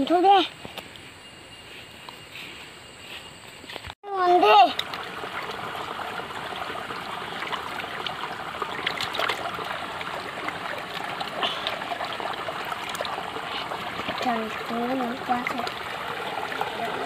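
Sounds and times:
trickling water: 0:04.1 - 0:17.0
water splashing in plastic bucket: 0:04.6 - 0:17.0.

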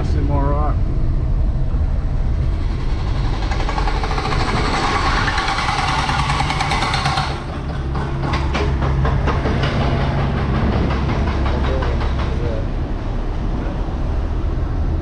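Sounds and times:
vehicle engine running: 0:00.0 - 0:12.8
road noise: 0:00.0 - 0:15.0
loud harsh rattle: 0:01.7 - 0:12.8.

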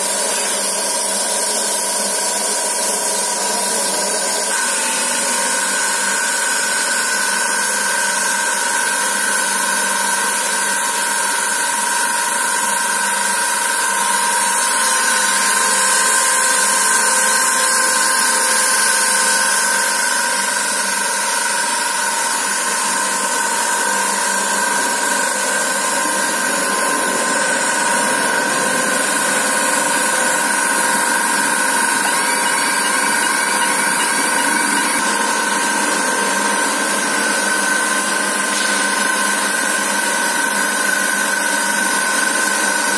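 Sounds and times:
machine drone with whining tones: 0:00.0 - 0:42.9.

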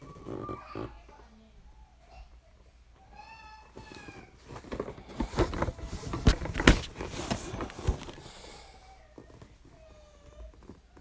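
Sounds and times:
cardboard box rubbing and rustling: 0:04.5 - 0:08.2.

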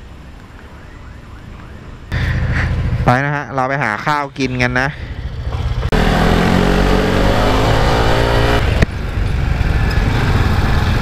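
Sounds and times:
wind and road noise: 0:00.0 - 0:11.0
motorcycle engine accelerating: 0:05.2 - 0:11.0.

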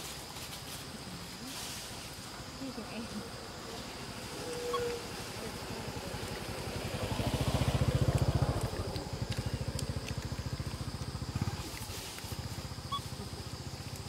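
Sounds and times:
small motorcycle engine passing: 0:03.2 - 0:14.0.

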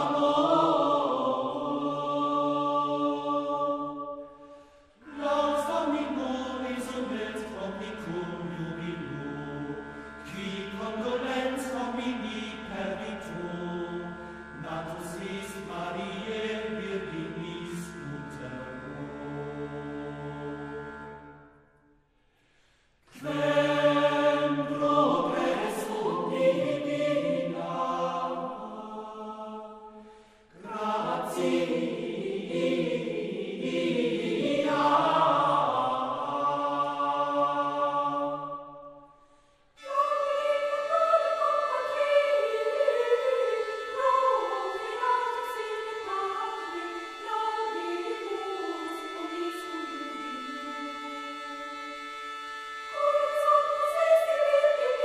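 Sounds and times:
choir chanting: 0:00.0 - 0:21.6, 0:23.1 - 0:39.2, 0:39.8 - 0:55.0
low held drone: 0:39.8 - 0:55.0.

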